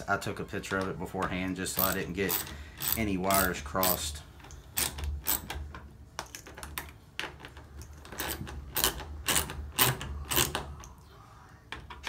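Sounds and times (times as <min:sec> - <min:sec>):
ratchet tool clicking: 0:01.8 - 0:04.1.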